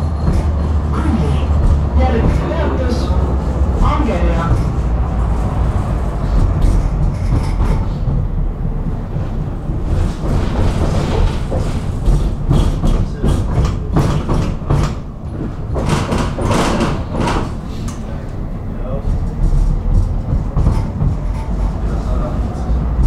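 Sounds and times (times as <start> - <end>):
knocks and rattles: 0.0 - 2.9, 6.2 - 8.8, 9.8 - 17.6, 19.1 - 21.8
tram rumbling on track: 0.0 - 23.0.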